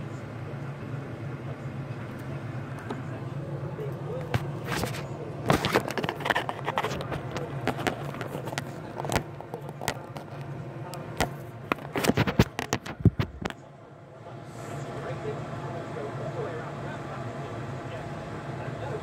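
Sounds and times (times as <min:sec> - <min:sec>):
steady low hum: 0:00.0 - 0:19.0
pen scratching on paper: 0:04.3 - 0:08.8.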